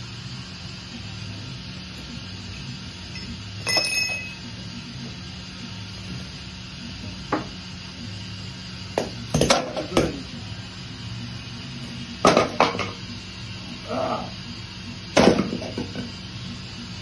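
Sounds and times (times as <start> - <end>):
metal tools clanking: 3.2 - 4.4.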